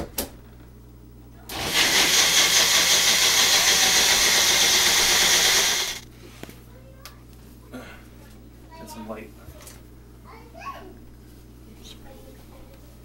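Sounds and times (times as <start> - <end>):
blender motor whirring: 1.5 - 6.0.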